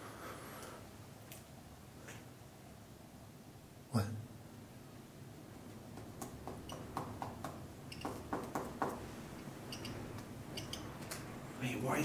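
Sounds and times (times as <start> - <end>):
faint tapping inside wall: 5.6 - 11.3.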